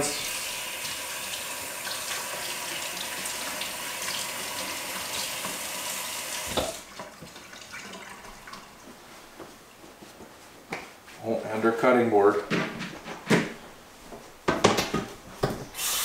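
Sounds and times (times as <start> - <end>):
faucet running into a metal sink: 0.0 - 8.6, 15.8 - 16.0
faucet shut-off knock: 6.4 - 6.8.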